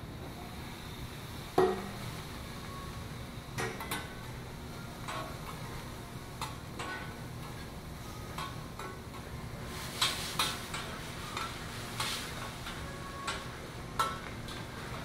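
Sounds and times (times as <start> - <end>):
food sizzling: 9.6 - 15.0.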